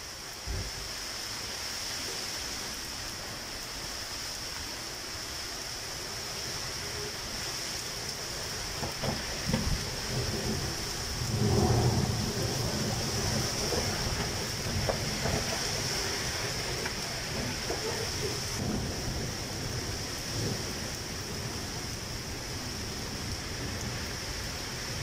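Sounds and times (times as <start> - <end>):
rain falling: 0.0 - 25.0
thunder rumble: 8.3 - 25.0.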